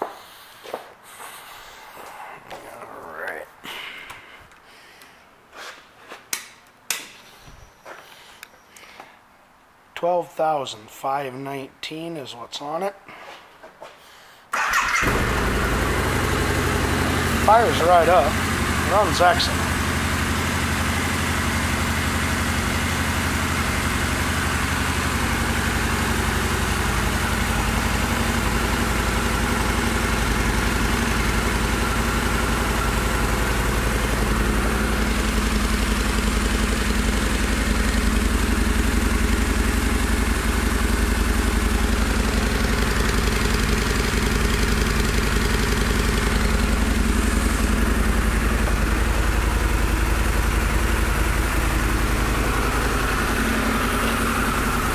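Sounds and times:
motorcycle engine idling: 14.6s - 54.9s.

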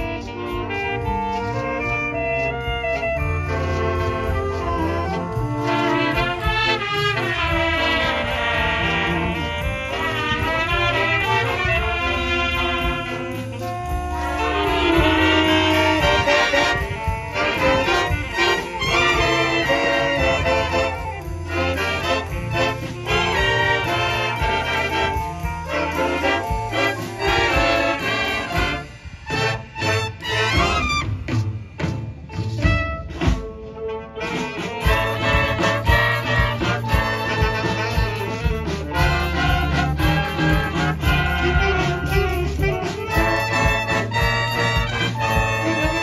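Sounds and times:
jazz ensemble playing a tango: 0.0s - 46.0s.

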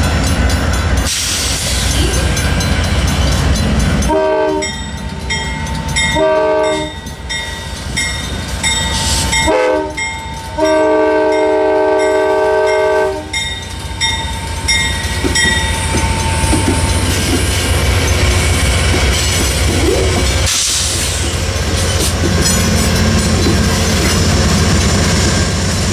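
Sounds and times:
crossing bell ringing: 0.0s - 24.8s
diesel locomotive rumble: 0.0s - 25.9s
train wheels clacking: 0.0s - 25.9s
train horn blasts: 4.0s - 4.8s, 6.1s - 7.0s, 9.4s - 13.4s.

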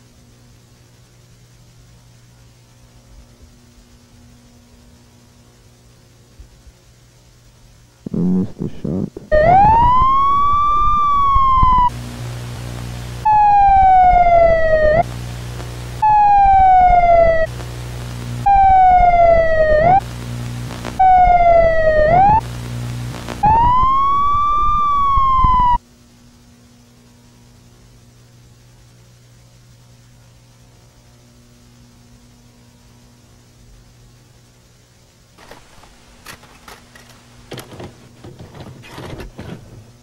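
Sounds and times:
faint hum: 0.0s - 40.0s
loud tape static: 7.9s - 25.8s, 35.4s - 38.3s
emergency siren wailing: 9.3s - 12.0s, 13.2s - 15.1s, 16.0s - 17.5s, 18.4s - 20.0s, 21.0s - 22.4s, 23.4s - 25.8s.

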